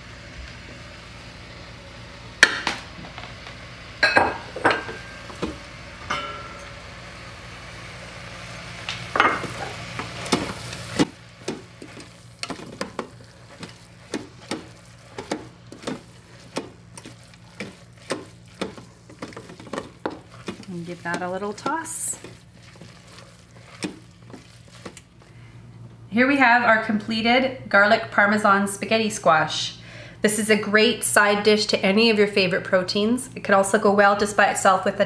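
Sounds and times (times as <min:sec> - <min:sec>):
low sizzle: 0:00.0 - 0:29.3
wooden spoon knocking a pot: 0:11.0 - 0:23.0
spoon scraping a pot: 0:11.5 - 0:25.1.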